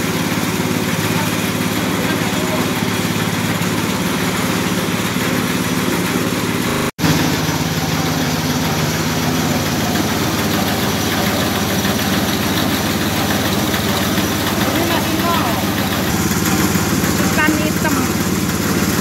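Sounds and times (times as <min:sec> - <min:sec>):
rice milling machine running: 0:00.0 - 0:19.0.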